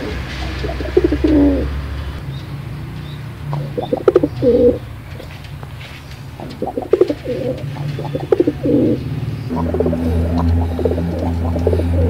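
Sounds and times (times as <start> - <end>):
pigeons cooing: 0.0 - 2.2, 3.5 - 5.4, 6.1 - 12.0
low steady hum: 6.8 - 12.0.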